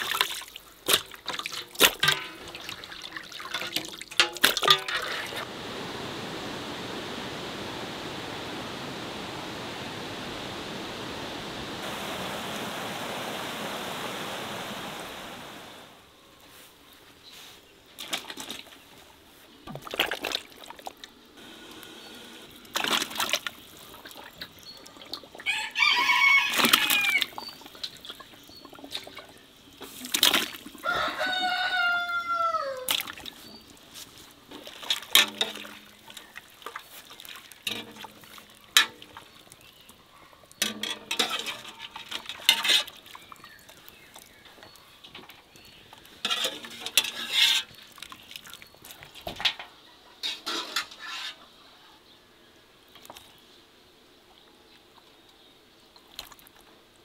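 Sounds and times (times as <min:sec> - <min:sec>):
water splashing in a pot: 0:00.0 - 0:05.5, 0:19.7 - 0:21.8, 0:22.5 - 0:31.0, 0:32.8 - 0:49.6
rooster crowing: 0:25.4 - 0:27.3, 0:30.8 - 0:32.9.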